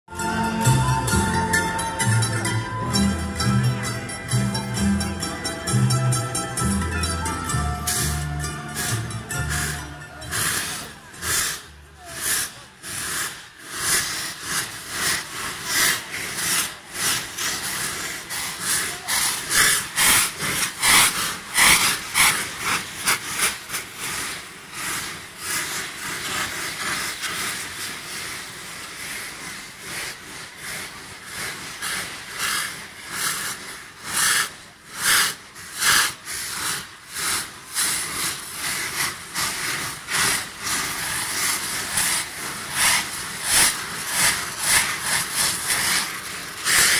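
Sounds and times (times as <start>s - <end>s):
fireworks hissing and fizzing: 7.2s - 46.9s.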